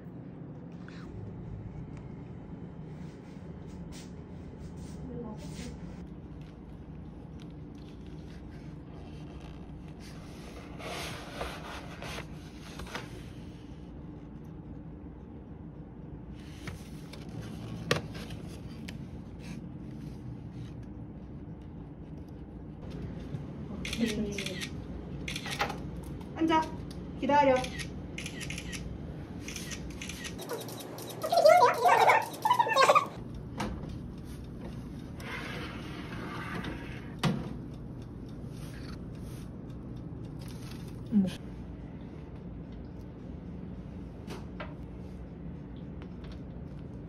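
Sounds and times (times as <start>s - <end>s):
low steady hum: 0.0s - 47.0s
paperboard box rubbing and scraping: 10.0s - 13.2s
oven hum: 28.8s - 47.0s.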